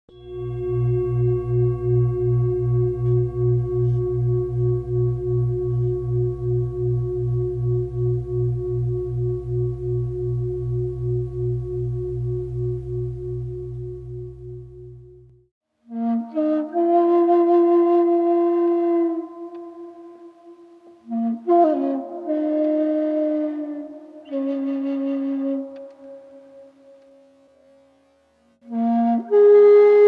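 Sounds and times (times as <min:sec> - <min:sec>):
singing bowl ringing: 0:00.1 - 0:15.3.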